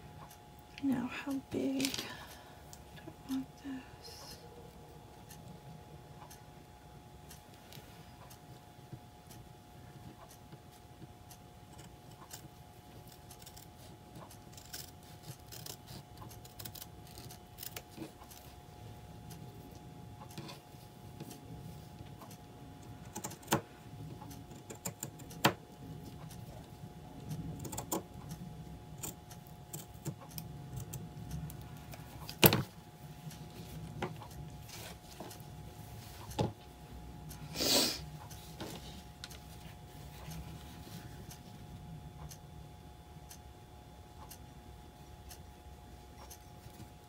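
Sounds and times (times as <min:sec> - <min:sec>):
faint steady hum: 0:00.0 - 0:47.0
scissors snipping fabric: 0:11.7 - 0:18.6, 0:23.0 - 0:23.6, 0:24.4 - 0:26.4, 0:29.0 - 0:31.6.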